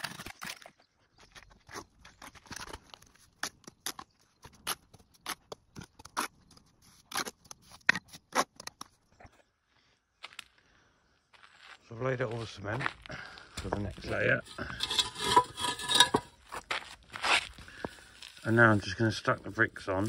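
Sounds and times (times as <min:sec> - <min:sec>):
trowel scraping mortar: 0:01.4 - 0:09.0, 0:14.0 - 0:16.5.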